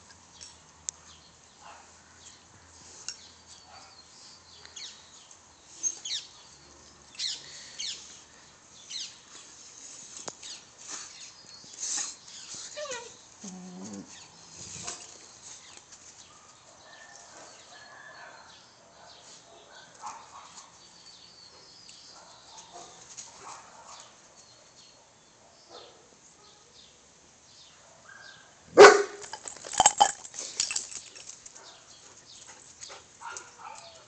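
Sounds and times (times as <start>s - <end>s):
dog barking: 17.8s - 20.7s, 22.2s - 24.1s, 25.7s - 26.1s, 27.8s - 29.2s, 33.2s - 34.0s.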